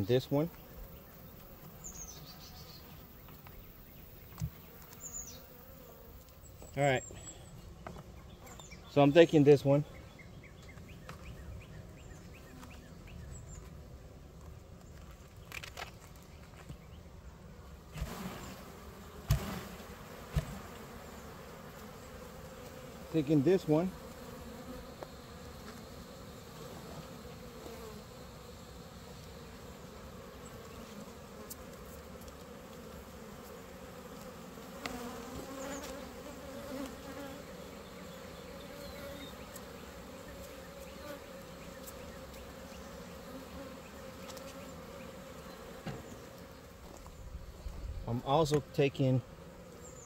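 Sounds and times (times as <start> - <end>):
bees buzzing: 0.0 - 14.2, 16.6 - 50.0.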